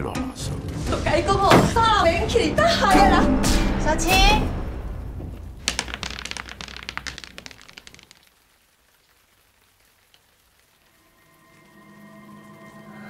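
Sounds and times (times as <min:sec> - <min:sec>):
crackle of sharp clicks: 0:05.7 - 0:10.7.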